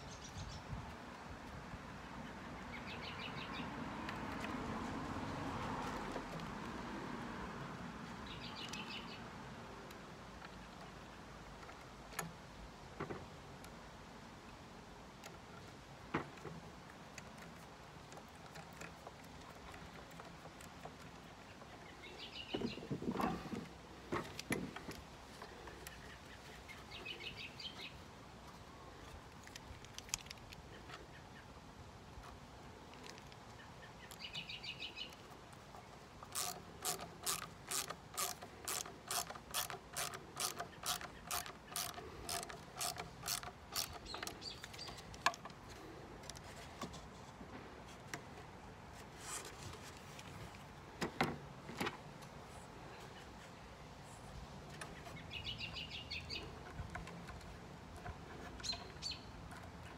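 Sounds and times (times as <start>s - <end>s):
wooden parts thumping: 22.5s - 25.8s, 50.9s - 52.0s
ratchet screwdriver clicking: 36.2s - 45.4s.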